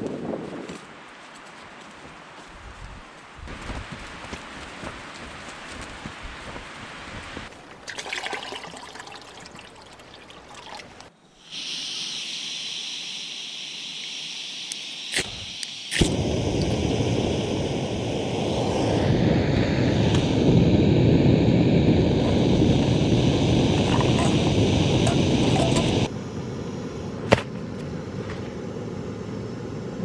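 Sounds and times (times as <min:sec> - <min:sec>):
water poured into pot: 0:07.7 - 0:11.1
gas hissing from valve: 0:11.4 - 0:26.1
stove burner flame rushing: 0:14.2 - 0:26.2.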